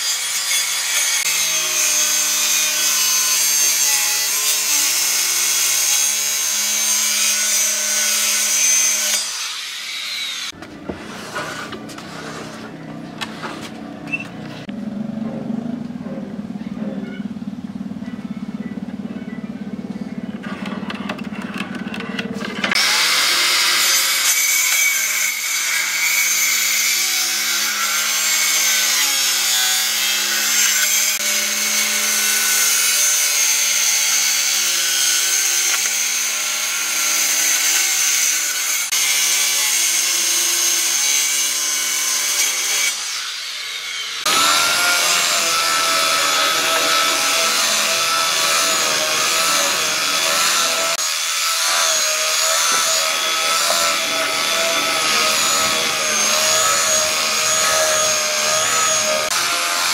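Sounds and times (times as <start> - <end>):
circular saw cutting wood: 0.0 - 14.8, 20.4 - 59.9
belt sander running: 44.0 - 59.9.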